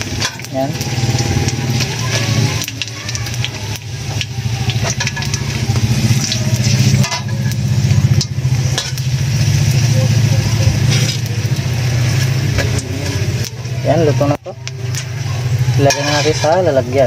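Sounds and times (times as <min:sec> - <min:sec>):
fish sizzling in hot oil: 0:00.0 - 0:17.0
metal spatula scraping pan: 0:04.8 - 0:07.6, 0:08.2 - 0:09.2, 0:10.7 - 0:13.3, 0:15.8 - 0:17.0.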